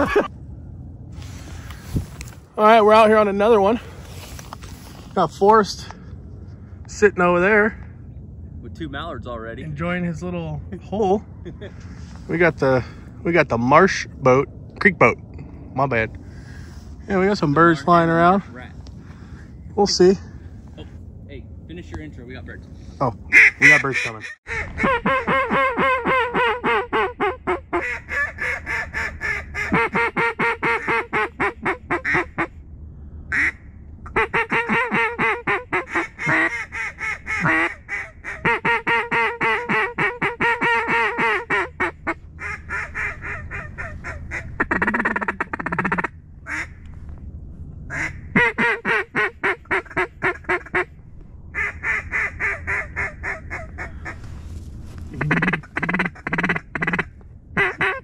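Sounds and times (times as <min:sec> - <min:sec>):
duck call quacks and chatter: 0:23.3 - 0:32.5, 0:33.3 - 0:46.7, 0:47.9 - 0:50.9, 0:55.1 - 0:58.0.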